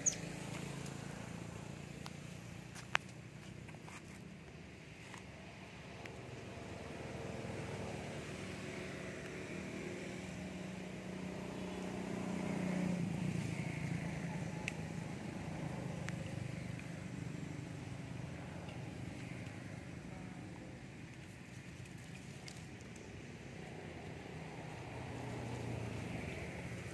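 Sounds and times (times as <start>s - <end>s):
vehicle engine running: 5.6s - 26.9s.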